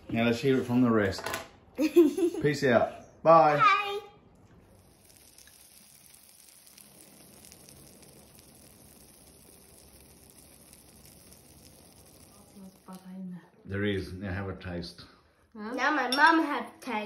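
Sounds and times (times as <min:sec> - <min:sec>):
faint steady hiss: 0:01.8 - 0:16.2
light crackling: 0:04.2 - 0:13.8.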